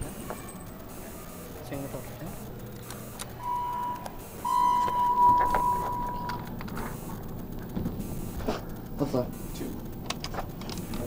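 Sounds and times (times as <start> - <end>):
elevator beeper: 3.4 - 6.6.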